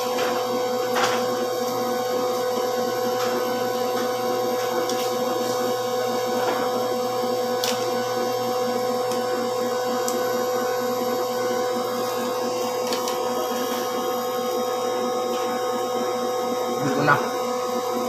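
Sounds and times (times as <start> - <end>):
steady mechanical hum: 0.0 - 18.0.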